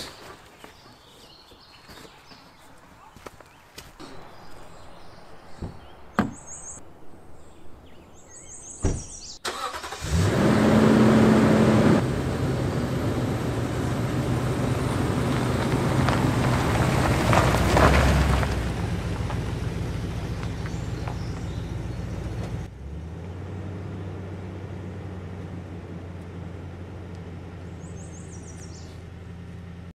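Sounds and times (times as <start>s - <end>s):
truck engine starting and running: 8.8s - 29.9s.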